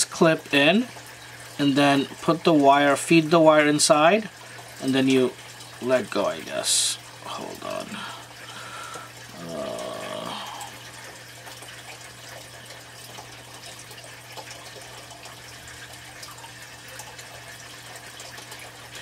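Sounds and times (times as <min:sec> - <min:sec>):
murmured voice: 0:09.3 - 0:10.7.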